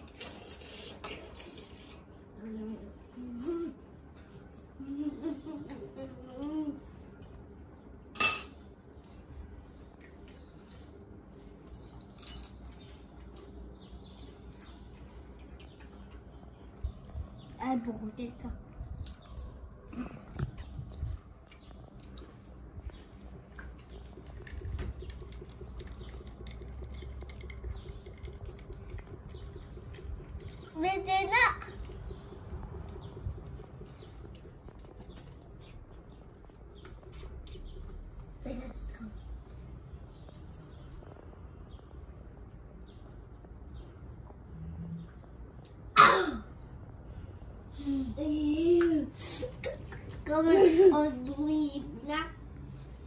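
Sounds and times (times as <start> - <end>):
water trickling into a cup: 23.0 - 35.9.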